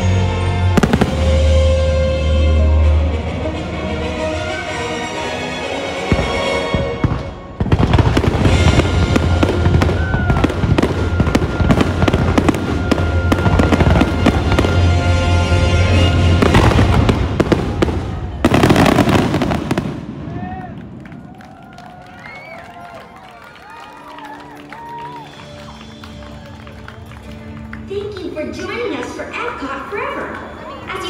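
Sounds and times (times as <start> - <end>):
fireworks bursting and crackling: 0.7 - 2.0, 6.0 - 22.6.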